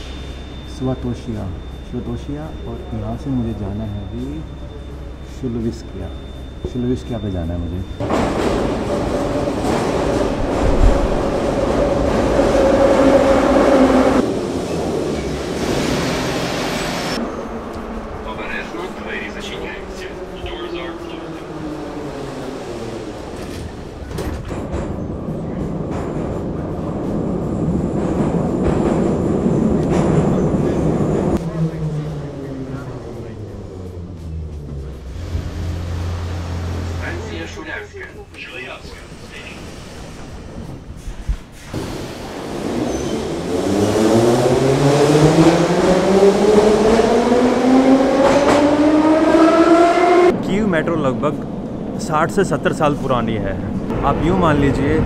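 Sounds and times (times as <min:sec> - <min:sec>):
metro train rumble and rattle: 0:00.0 - 0:55.0.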